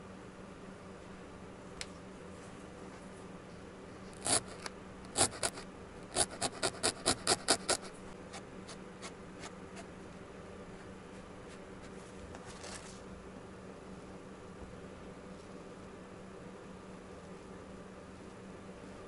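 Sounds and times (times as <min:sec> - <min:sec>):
felting needle jabbing: 0:04.2 - 0:07.9.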